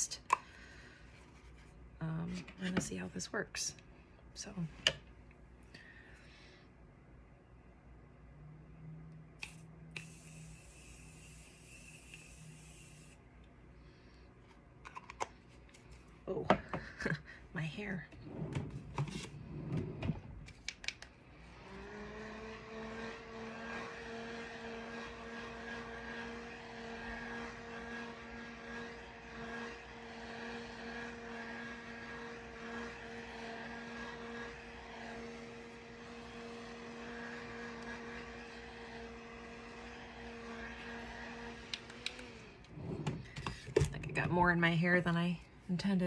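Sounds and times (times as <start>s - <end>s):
handheld fan motor hum: 9.4s - 13.5s, 21.4s - 43.9s.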